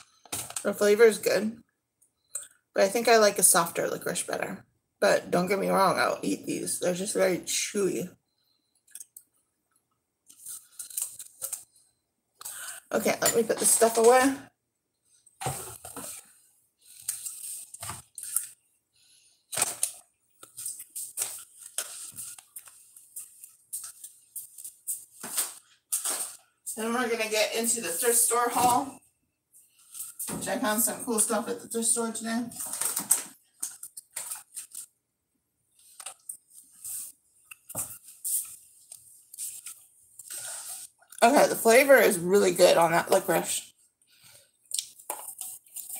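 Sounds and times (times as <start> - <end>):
groceries being handled: 10.2 - 11.8, 15.1 - 28.9, 29.6 - 35.1, 44.0 - 45.9
grocery packages rustling and knocking: 32.6 - 34.7.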